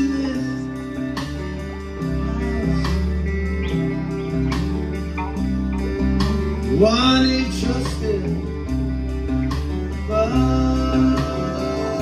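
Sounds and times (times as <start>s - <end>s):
held lead guitar note: 0.0s - 12.0s
live rock band playing: 0.0s - 12.0s.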